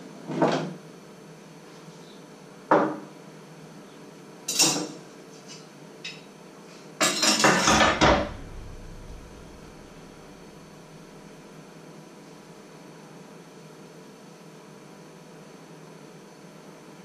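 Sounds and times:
kitchen items clattering: 0:07.0 - 0:08.5
kitchen items knocking on wood: 0:07.4 - 0:09.7.

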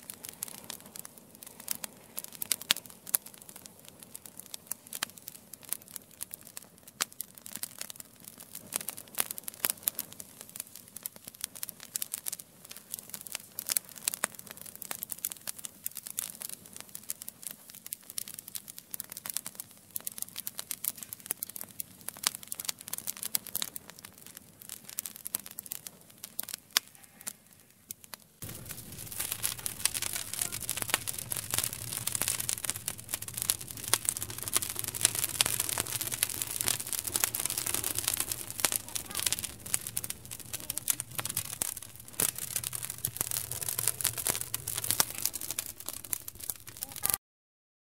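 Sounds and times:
rush of flames: 0:00.0 - 0:18.4, 0:28.4 - 0:47.2
wood fire crackling and popping: 0:00.0 - 0:47.2.

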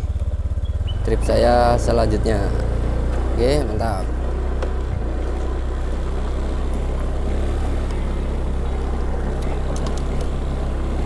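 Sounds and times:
road rumble: 0:00.0 - 0:11.0
scooter engine: 0:00.0 - 0:11.0.

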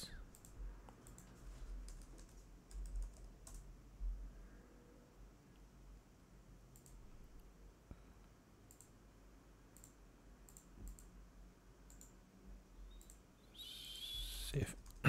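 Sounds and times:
computer mouse clicks: 0:00.3 - 0:03.6, 0:06.7 - 0:07.0, 0:08.6 - 0:09.0, 0:09.7 - 0:11.2, 0:11.8 - 0:12.2, 0:12.9 - 0:13.2.

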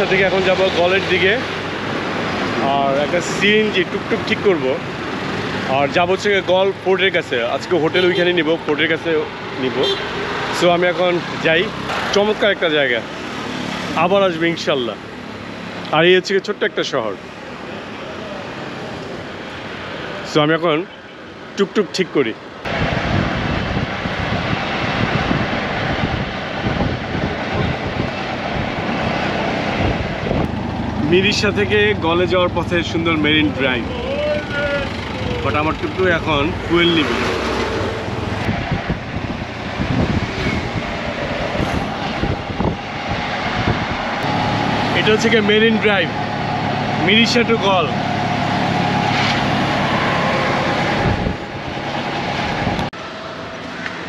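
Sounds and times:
auto-rickshaw engine: 0:00.0 - 0:21.6, 0:22.2 - 0:54.0
road noise: 0:00.0 - 0:54.0
wind noise: 0:22.7 - 0:31.1, 0:36.3 - 0:44.9, 0:48.0 - 0:53.0.

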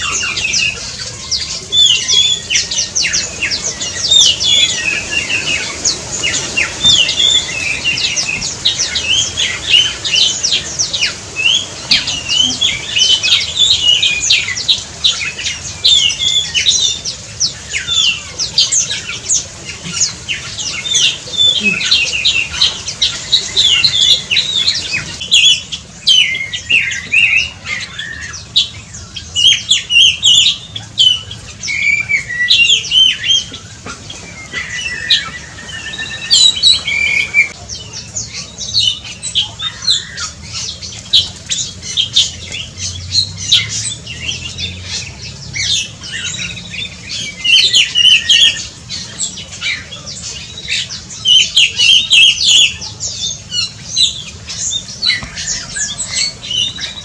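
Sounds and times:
bird squawking and chirping: 0:00.0 - 0:57.0.

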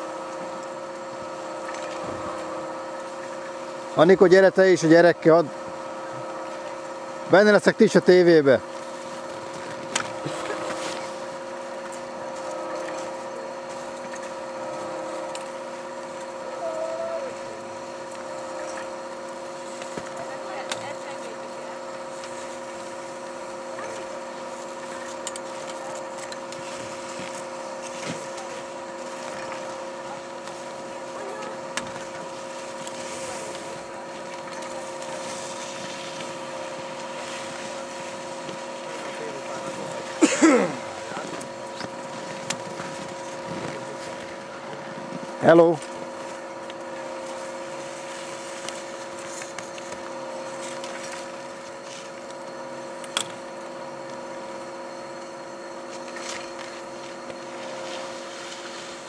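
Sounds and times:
steady mechanical hum: 0:00.0 - 0:59.0.

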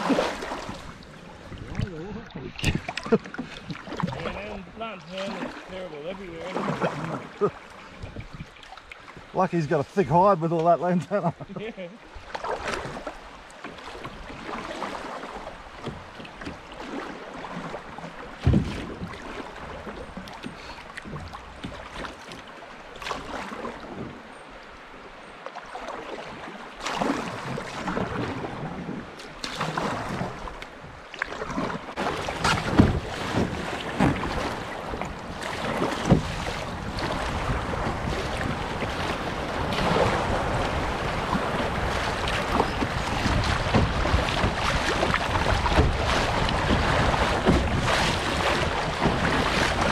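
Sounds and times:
wind on microphone: 0:00.0 - 0:03.0, 0:08.0 - 0:08.6, 0:32.2 - 0:49.9
kayak paddle splashing: 0:00.0 - 0:49.9
rushing river water: 0:00.0 - 0:49.9.

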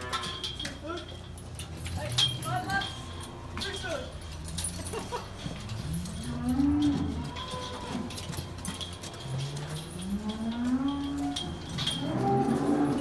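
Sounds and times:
cows mooing: 0:05.6 - 0:13.0.

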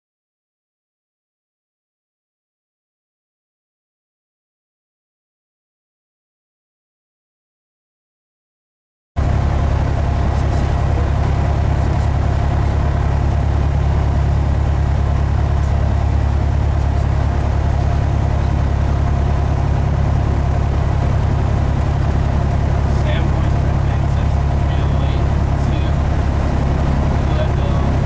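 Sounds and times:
propeller plane engine drone: 0:09.2 - 0:28.0.

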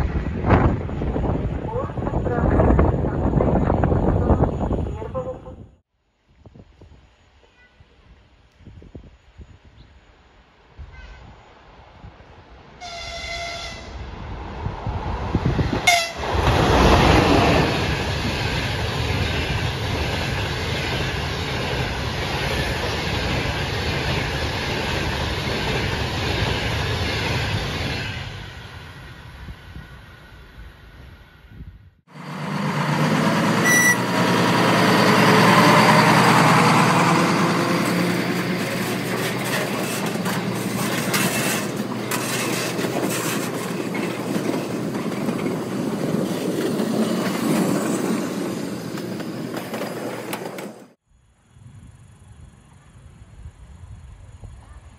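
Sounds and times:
passenger train passing at speed: 0:00.0 - 0:05.8, 0:06.4 - 0:54.9
train horn: 0:07.4 - 0:08.0, 0:10.9 - 0:11.4, 0:12.8 - 0:14.0, 0:15.8 - 0:16.2, 0:33.6 - 0:34.2
train wheels clattering on rails: 0:32.2 - 0:51.0.

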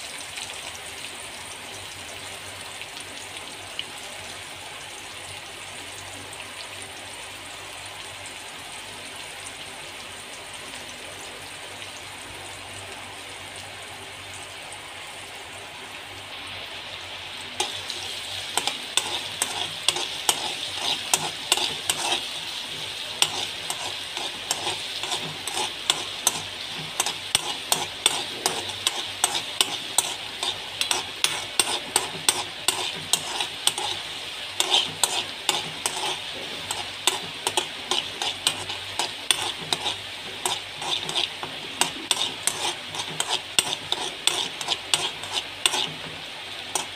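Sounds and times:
onion sizzling in hot oil: 0:14.6 - 0:46.9
spatula scraping a wok: 0:17.6 - 0:46.9.

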